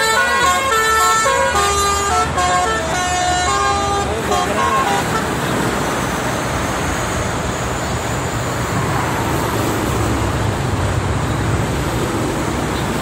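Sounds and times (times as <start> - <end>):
highway traffic: 0.0 - 13.0.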